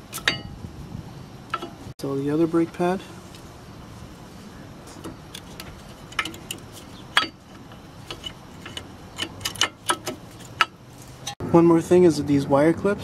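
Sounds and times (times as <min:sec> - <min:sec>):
light metal clicks and taps: 0:04.9 - 0:11.4.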